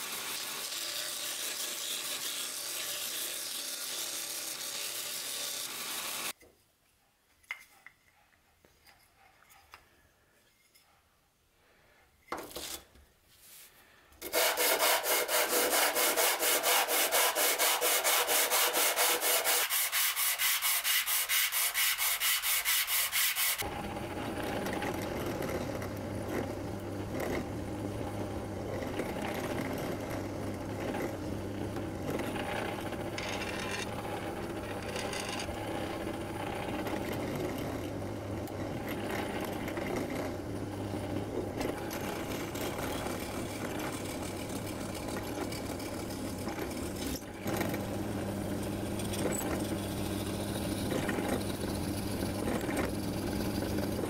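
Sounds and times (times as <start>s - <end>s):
belt grinder sanding wood: 0.0s - 6.3s, 14.2s - 54.0s
wood rubbed on sandpaper: 14.3s - 23.6s.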